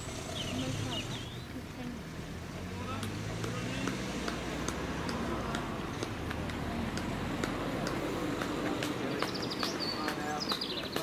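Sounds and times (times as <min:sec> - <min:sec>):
bird chirping: 0:00.0 - 0:01.6, 0:09.0 - 0:11.0
runners footsteps on tarmac: 0:03.0 - 0:11.0.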